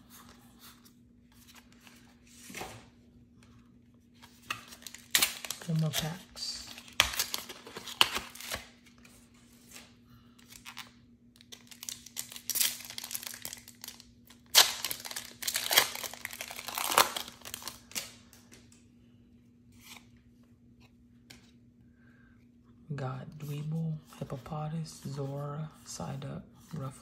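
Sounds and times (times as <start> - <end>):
foil wrapper tearing and crinkling: 4.7 - 8.7, 10.5 - 18.1.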